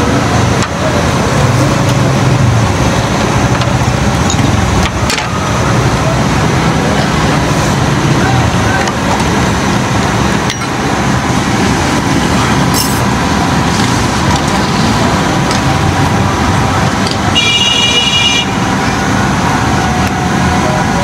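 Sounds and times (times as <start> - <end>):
road traffic rumble: 0.0 - 21.0
vehicle horn: 17.3 - 18.7.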